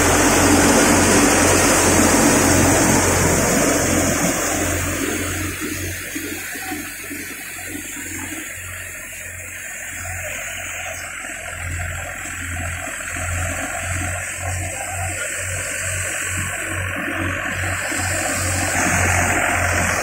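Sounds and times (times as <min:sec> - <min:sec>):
thresher drum rushing noise: 0:00.0 - 0:08.4
tractor diesel engine hum: 0:00.0 - 0:20.0.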